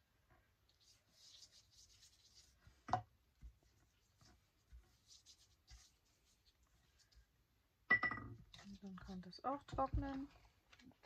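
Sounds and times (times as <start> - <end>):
paintbrush strokes on paper: 0.4 - 7.4.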